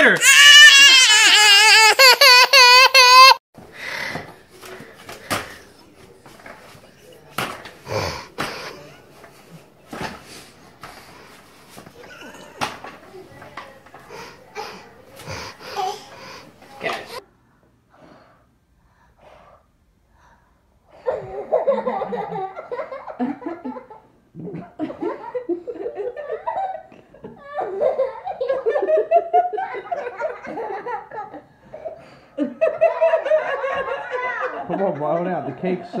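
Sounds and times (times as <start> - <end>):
faint breath puffs: 17.9 - 20.7.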